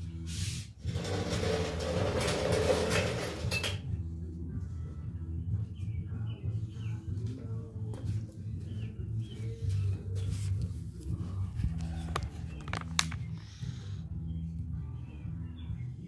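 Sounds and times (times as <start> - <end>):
metal frame scraping on concrete: 0.2 - 3.8
birds chirping: 5.4 - 10.3.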